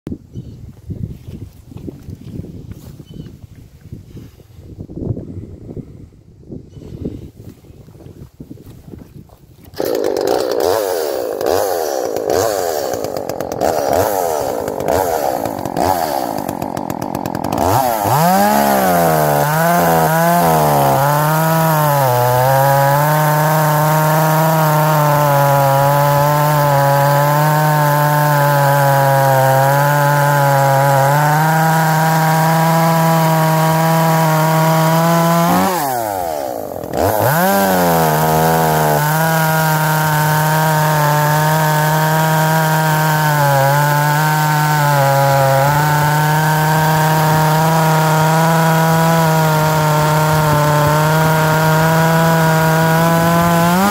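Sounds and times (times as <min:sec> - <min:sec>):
chainsaw cutting through log: 0:09.6 - 0:53.9.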